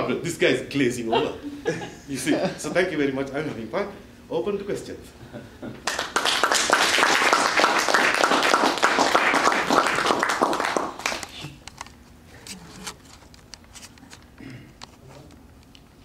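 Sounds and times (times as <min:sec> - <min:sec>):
audience applauding: 0:05.8 - 0:11.4.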